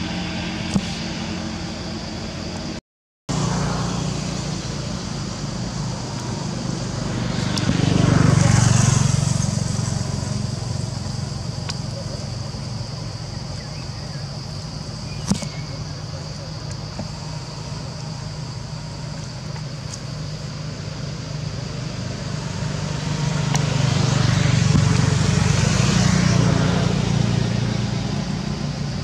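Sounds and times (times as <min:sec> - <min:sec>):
vehicle engine passing by: 0:03.3 - 0:14.2, 0:21.1 - 0:29.0.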